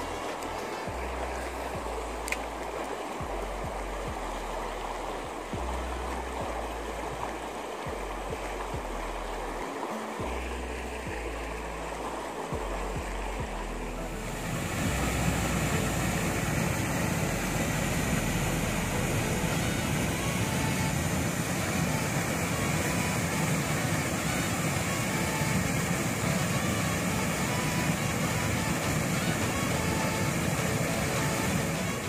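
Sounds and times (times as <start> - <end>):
river rushing over waterfall and rapids: 0.0 - 32.0.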